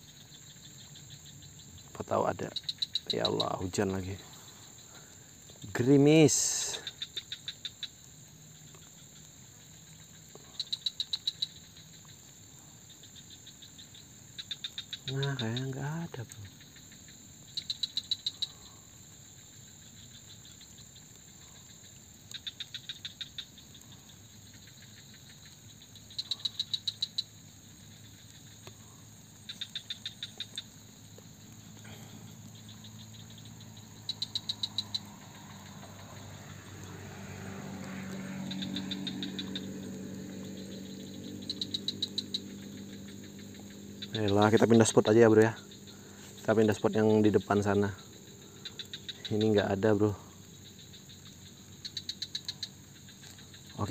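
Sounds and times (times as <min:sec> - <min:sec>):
insect trilling: 0:00.0 - 0:53.9
low engine hum: 0:31.6 - 0:44.5.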